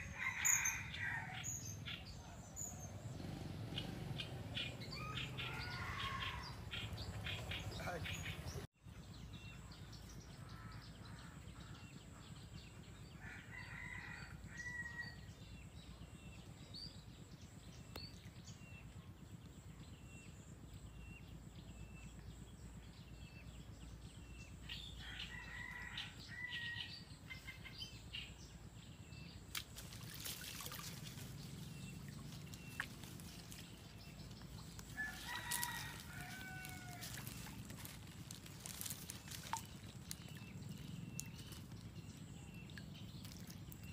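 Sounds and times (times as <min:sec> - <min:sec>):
small birds chirping: 0:01.5 - 0:10.1, 0:29.3 - 0:43.9
rooster crowing faintly: 0:35.0 - 0:37.9.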